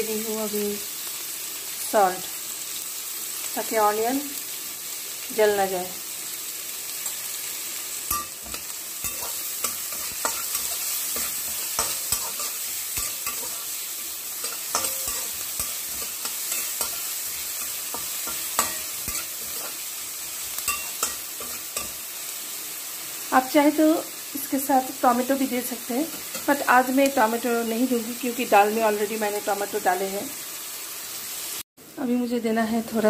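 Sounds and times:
onions sizzling in hot oil: 0.0s - 33.0s
metal spatula scraping pan: 8.1s - 22.0s.

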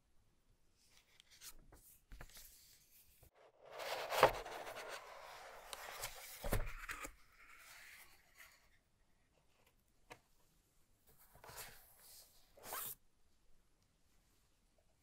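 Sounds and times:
cardboard scraping: 3.5s - 7.1s.

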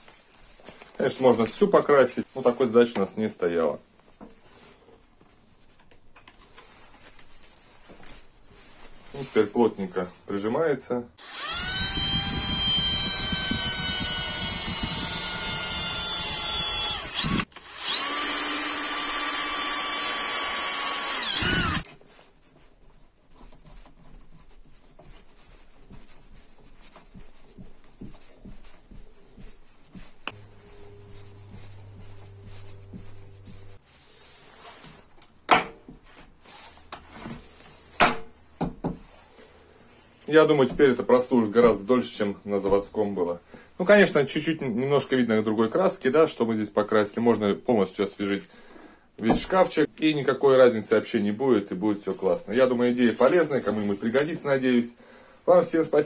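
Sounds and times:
cordless drill motor whining: 11.2s - 21.8s.

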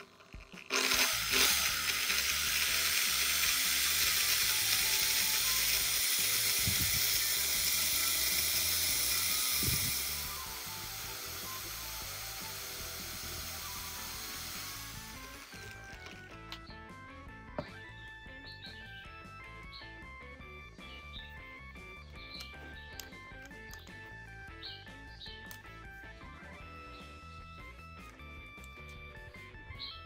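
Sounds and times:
file grinding on spinning rod: 0.0s - 16.2s
electric drill running: 0.0s - 16.6s.

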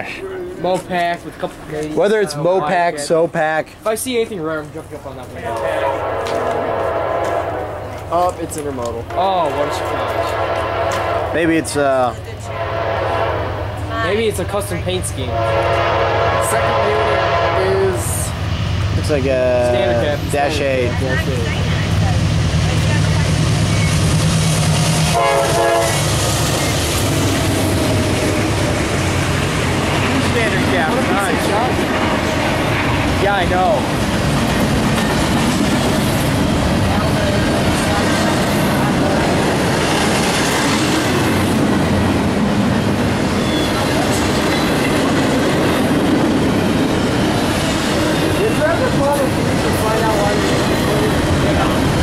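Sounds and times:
diesel locomotive engine drone: 0.0s - 52.0s
train wheels clattering on rails: 4.6s - 11.3s, 21.6s - 52.0s
train horn blast: 5.4s - 8.1s, 9.1s - 11.5s, 12.5s - 13.9s, 15.3s - 18.1s, 25.0s - 26.2s.

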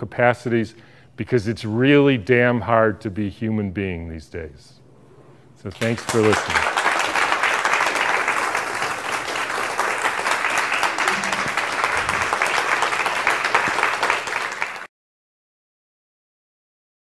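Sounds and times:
audience applauding: 5.8s - 14.9s.

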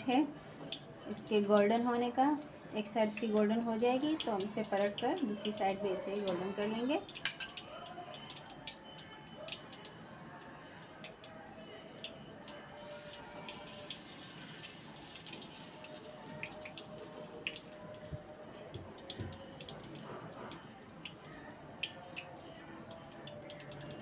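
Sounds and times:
potato sticks deep-frying in oil: 0.0s - 24.0s.

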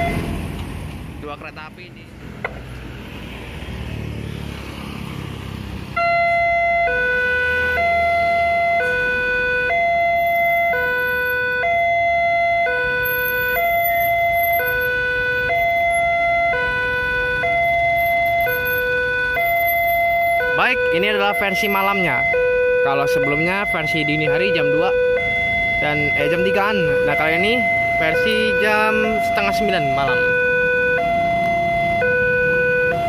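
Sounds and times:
level crossing two-tone alarm: 6.0s - 33.0s.

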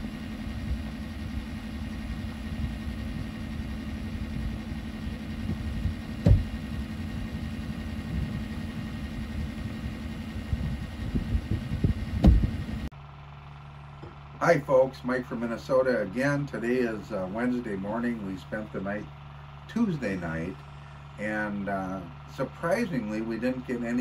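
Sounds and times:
truck engine running: 0.0s - 24.0s
sharp thump: 6.2s - 6.8s, 11.8s - 12.6s.

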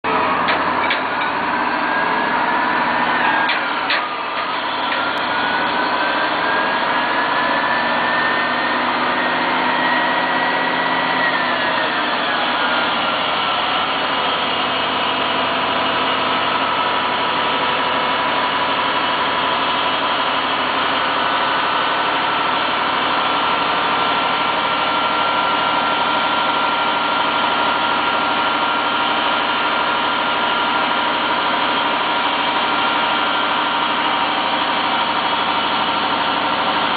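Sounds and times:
truck engine running with whine: 0.0s - 36.9s.

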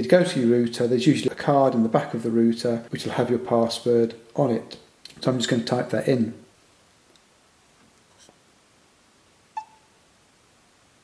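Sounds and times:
touchscreen beep: 9.6s - 9.9s.

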